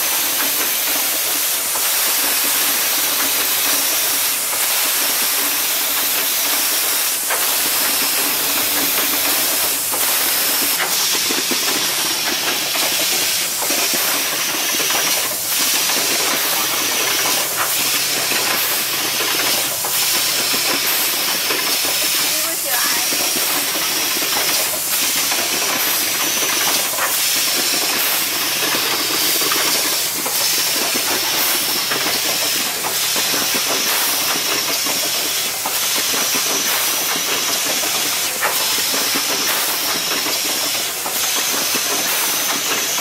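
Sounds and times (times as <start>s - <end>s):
machine hissing: 0.0s - 43.0s
pneumatic clicks: 0.0s - 43.0s.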